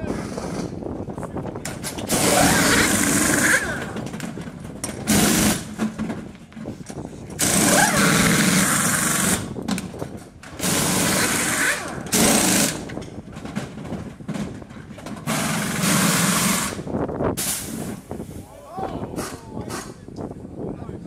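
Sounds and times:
air impact wrenches rattling: 0:01.6 - 0:16.8.

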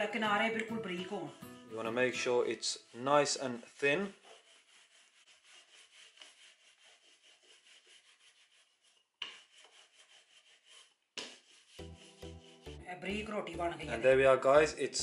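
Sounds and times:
rolling pin rubbing dough: 0:02.9 - 0:12.8.

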